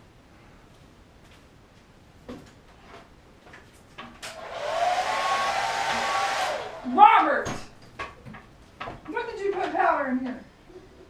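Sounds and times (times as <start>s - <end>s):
hair dryer running: 4.2s - 7.3s.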